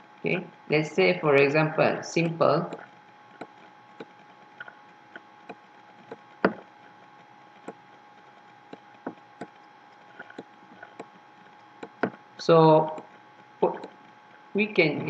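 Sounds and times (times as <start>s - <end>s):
faint electrical hum: 0.0s - 15.0s
stylus tapping on pen tablet: 11.8s - 12.2s.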